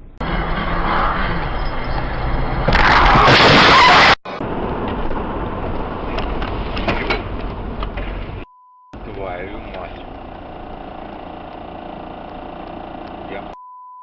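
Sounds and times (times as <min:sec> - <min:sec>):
car road noise: 0:00.0 - 0:08.4, 0:09.0 - 0:13.6
harsh rushing burst: 0:00.2 - 0:04.6.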